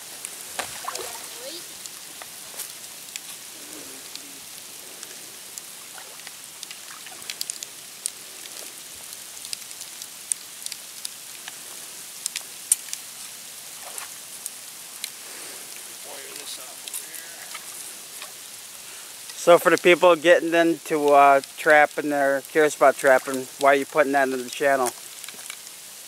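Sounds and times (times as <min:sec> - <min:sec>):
steady hiss: 0:00.0 - 0:26.0
water dripping and splashing: 0:00.0 - 0:26.0.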